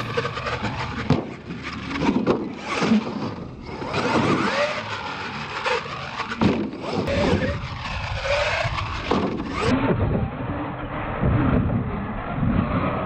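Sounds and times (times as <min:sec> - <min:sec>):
rc truck motor revving: 0:00.0 - 0:09.7.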